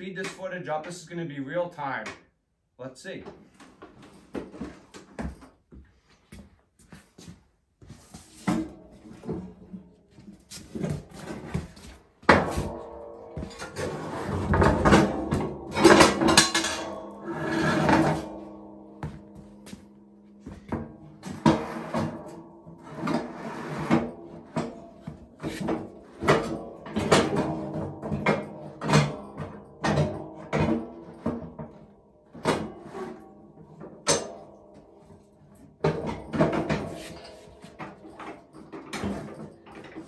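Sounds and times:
metal clanks and knocks: 8.2 - 40.0.

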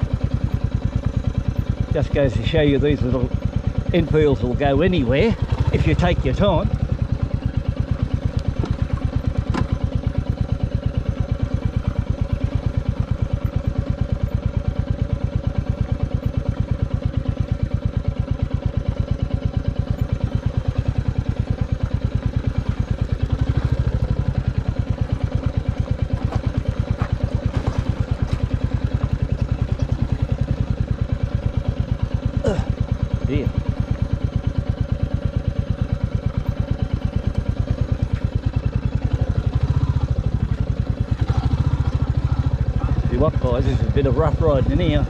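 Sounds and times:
motorcycle engine at low revs: 0.0 - 45.0.

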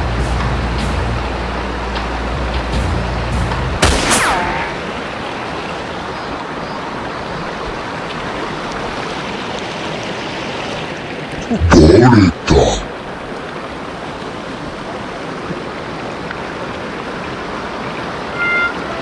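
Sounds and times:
stream running over rocks: 4.6 - 19.0
brief falling tone: 18.3 - 18.8.

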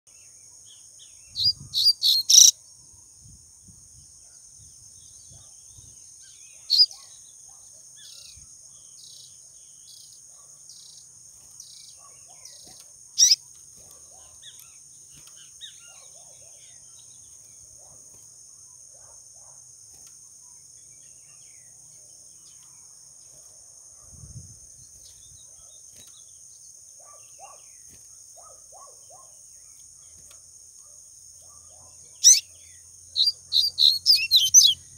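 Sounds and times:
bird high chirps: 0.7 - 2.6, 5.0 - 7.3, 11.6 - 17.4, 31.8 - 34.9.

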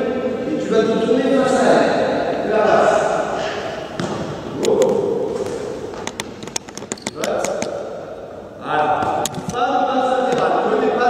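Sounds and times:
basketball knocks and bounces: 4.0 - 4.4.

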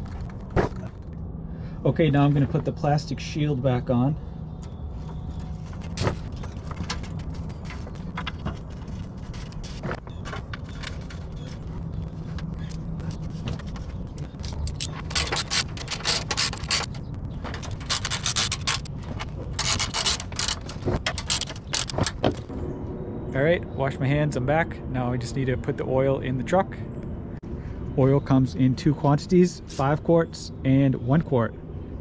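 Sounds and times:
low steady hum: 0.0 - 32.0
plastic rubbing and scraping: 5.0 - 22.5.

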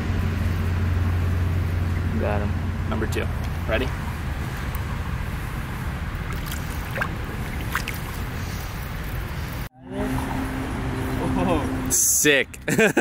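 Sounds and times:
wind rumbling on microphone: 0.3 - 11.9.

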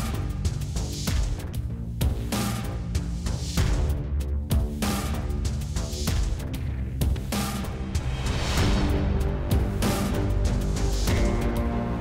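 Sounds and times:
percussion hits: 7.1 - 12.0
sustained music chords: 7.7 - 12.0.

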